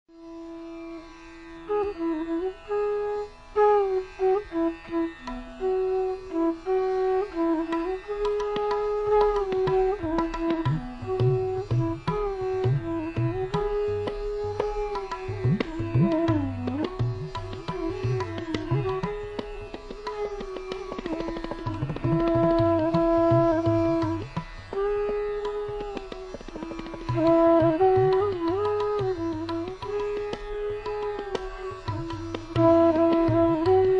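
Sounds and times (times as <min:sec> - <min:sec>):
sliding melody instrument: 0:00.2 - 0:33.9
tabla drumming: 0:07.6 - 0:33.9.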